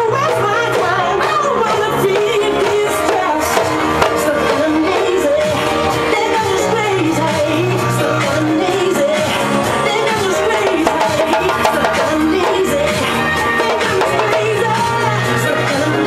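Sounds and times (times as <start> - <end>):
club music with sung melody: 0.0 - 16.0
djembe hand drumming: 10.4 - 15.0.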